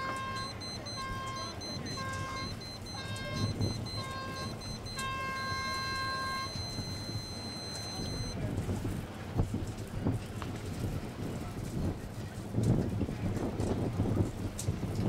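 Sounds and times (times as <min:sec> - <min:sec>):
long electronic beep: 0:00.0 - 0:08.4
short electronic beep: 0:00.0 - 0:08.4
wind buffets on microphone: 0:00.1 - 0:07.2, 0:08.0 - 0:15.0
wind rumble on microphone: 0:08.3 - 0:15.0.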